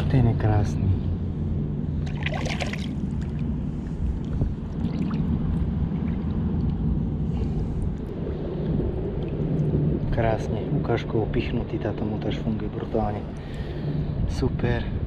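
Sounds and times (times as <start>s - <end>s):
steady low rumble: 0.0s - 15.0s
water splashing and sloshing: 1.8s - 12.4s.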